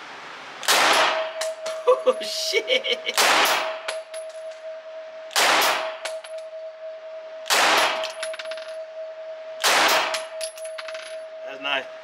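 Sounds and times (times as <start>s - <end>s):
steady high whine: 0.0s - 12.0s
spent casings clinking: 3.6s - 4.6s, 7.8s - 8.9s, 9.9s - 11.4s
gunshots echoing indoors: 5.3s - 6.2s, 7.4s - 8.2s, 9.6s - 10.4s.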